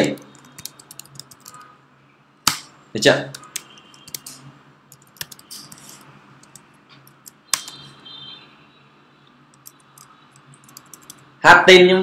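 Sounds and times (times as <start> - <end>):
computer keyboard typing: 0.0 - 1.7, 3.2 - 7.9, 9.5 - 11.3.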